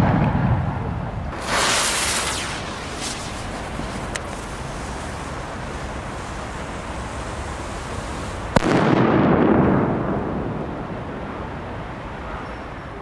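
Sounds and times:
rumbling echo: 0:00.0 - 0:03.8, 0:08.6 - 0:11.8
firecracker bang: 0:00.0 - 0:05.7, 0:08.2 - 0:10.8.

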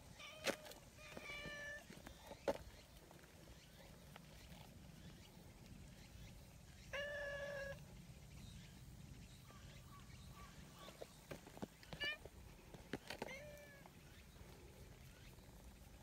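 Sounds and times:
cat meowing: 0:06.9 - 0:07.8.

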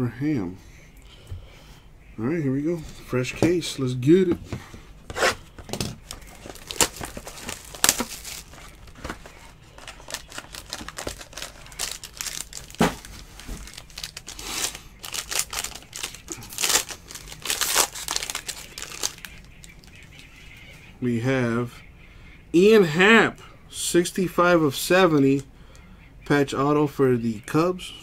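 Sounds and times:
plastic and foil wrapper crinkling: 0:05.6 - 0:20.4.

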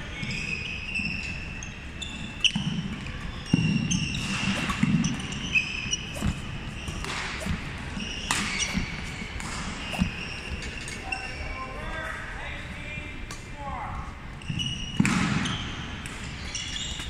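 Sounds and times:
sneakers squeaking on hardwood floor: 0:00.0 - 0:11.8, 0:14.3 - 0:17.0
rackets hitting shuttlecock: 0:02.5 - 0:11.0, 0:14.5 - 0:17.0.

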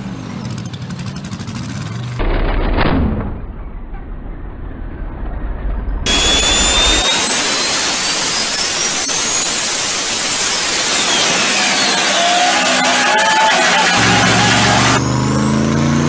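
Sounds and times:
low engine rumble: 0:00.0 - 0:07.0
truck engine roaring: 0:00.0 - 0:16.0
turbo whistle: 0:06.1 - 0:15.0.

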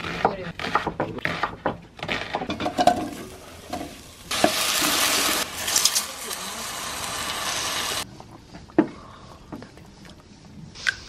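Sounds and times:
knife chopping on wooden board: 0:00.0 - 0:02.6
food sizzling in a pot: 0:02.8 - 0:08.0.

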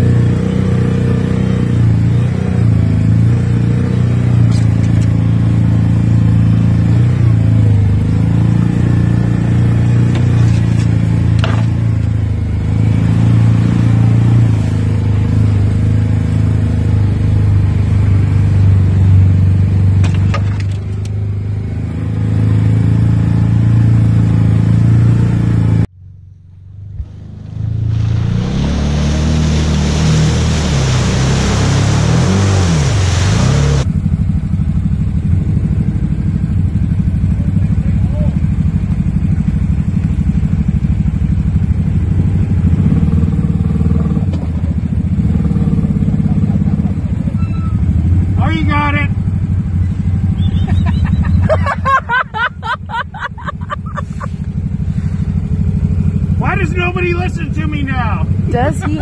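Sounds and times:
utility vehicle engine running: 0:00.0 - 0:59.0
splashing through mud and water: 0:08.7 - 0:16.8, 0:27.2 - 0:33.9.

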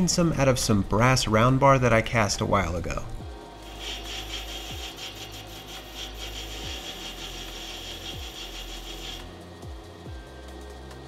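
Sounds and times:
metal lathe cutting brass: 0:03.6 - 0:09.3.

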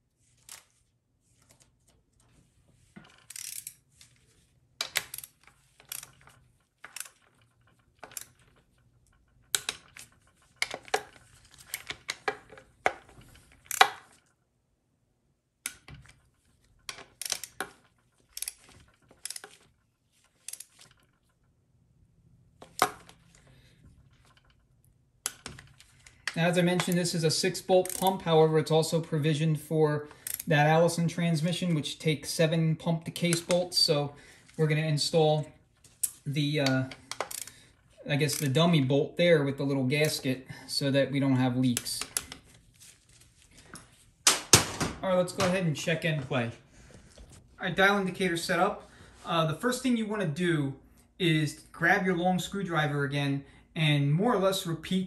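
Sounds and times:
ratcheting clicks: 0:03.0 - 0:03.8, 0:04.8 - 0:12.6, 0:15.6 - 0:21.5, 0:27.8 - 0:28.3, 0:30.1 - 0:30.5, 0:36.0 - 0:38.6
torque wrench clicks: 0:03.3 - 0:03.8, 0:04.8 - 0:06.2, 0:17.2 - 0:17.7, 0:30.2 - 0:30.5, 0:37.1 - 0:37.6.

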